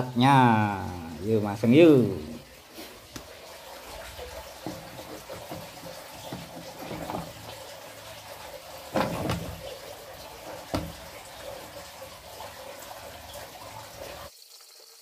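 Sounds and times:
hard plastic knocks and clacks: 4.6 - 7.5, 8.9 - 9.7, 10.7 - 11.0.

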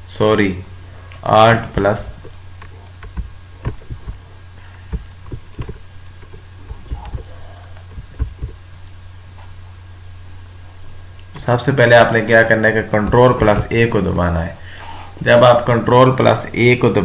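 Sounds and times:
low electrical hum: 0.0 - 17.0
computer keys clicking: 2.6 - 4.2.

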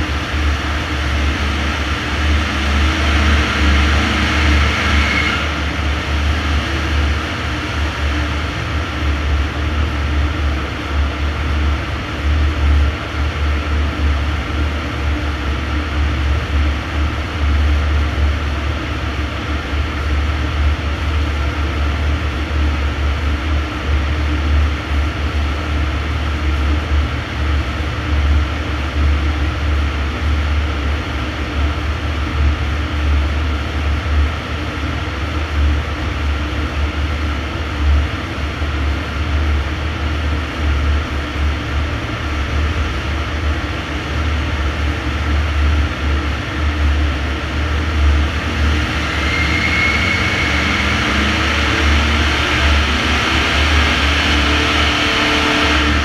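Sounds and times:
diesel engine idling: 0.0 - 9.9
cooling fan airflow: 0.0 - 56.0.

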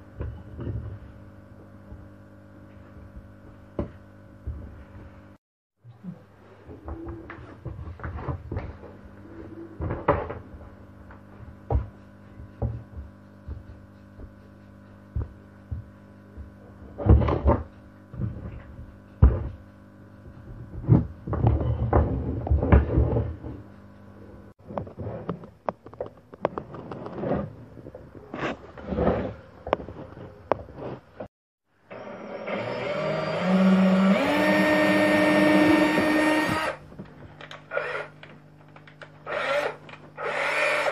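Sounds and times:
steady low hum: 0.0 - 31.3.

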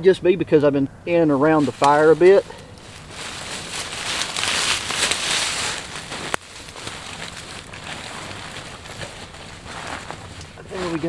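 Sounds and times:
sleeping bag fabric rustling: 1.5 - 11.0.

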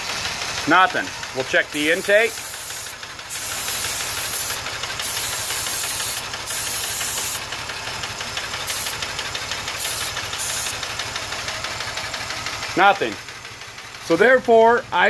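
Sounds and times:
engine idling: 0.0 - 15.0
aerosol spray hissing: 1.7 - 7.5, 8.6 - 9.1, 9.7 - 10.8.

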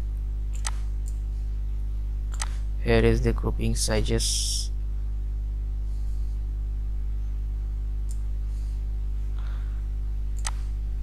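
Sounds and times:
low electrical hum: 0.0 - 11.0
computer mouse clicks: 0.5 - 1.2, 2.3 - 2.6, 10.4 - 10.7.

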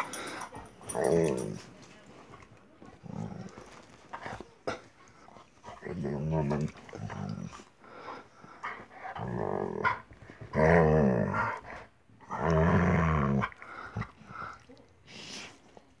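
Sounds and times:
dog growling playfully: 0.2 - 1.6, 3.0 - 3.8, 5.7 - 7.7, 9.0 - 14.2.

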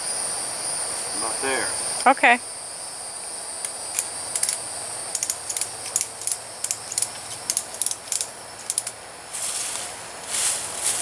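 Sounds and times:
high insect drone: 0.0 - 11.0
hammock strap clicks and rattles: 3.6 - 9.0.

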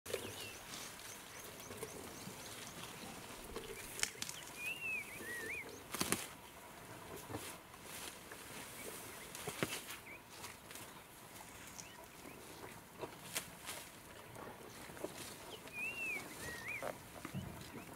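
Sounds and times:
vegetation snapping and cracking: 3.8 - 4.6, 5.9 - 6.3
bird whistling: 4.6 - 5.6, 15.7 - 16.9.

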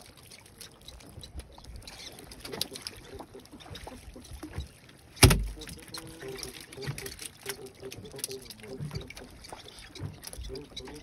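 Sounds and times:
knocks and clicks of fishing gear: 4.4 - 5.8
loud thump in wooden boat: 5.2 - 5.6.

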